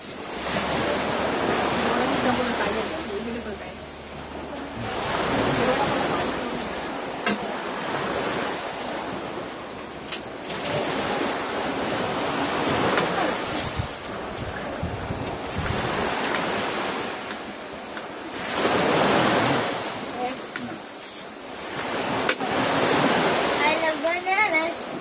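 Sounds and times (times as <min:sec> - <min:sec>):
wind blowing on microphone: 0:10.4 - 0:17.2.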